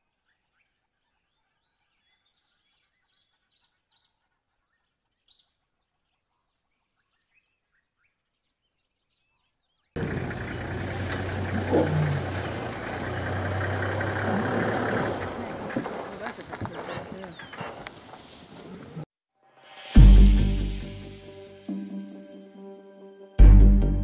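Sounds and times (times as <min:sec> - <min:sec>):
small birds chirping: 0:00.6 - 0:19.0
low engine hum: 0:10.0 - 0:19.0.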